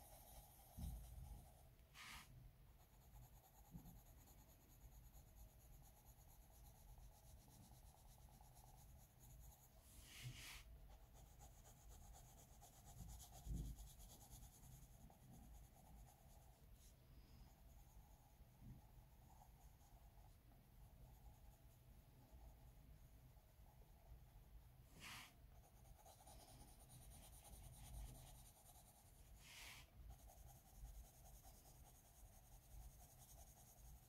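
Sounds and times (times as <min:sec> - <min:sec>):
pencil scratching on paper: 0:00.0 - 0:16.9, 0:24.9 - 0:34.0.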